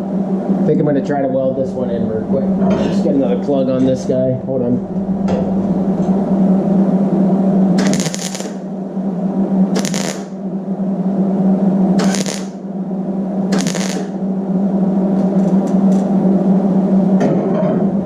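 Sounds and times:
welder crackling: 7.8s - 8.7s, 9.8s - 10.4s, 12.0s - 12.6s, 13.5s - 14.2s.

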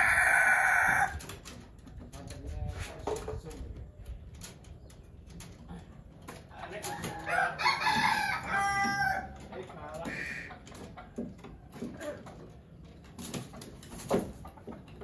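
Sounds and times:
rooster crowing: 0.0s - 1.2s, 6.9s - 9.4s.

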